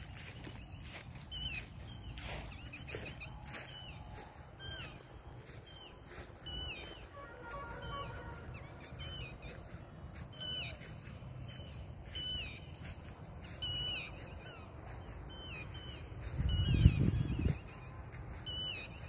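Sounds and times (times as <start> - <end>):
birds chirping: 0.0 - 19.0
wind rumble on microphone: 15.6 - 19.0.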